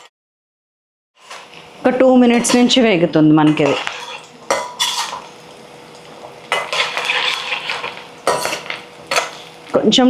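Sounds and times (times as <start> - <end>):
food sizzling in hot oil: 1.2 - 10.0
stirring scraping clatter: 3.4 - 5.3, 6.5 - 9.6.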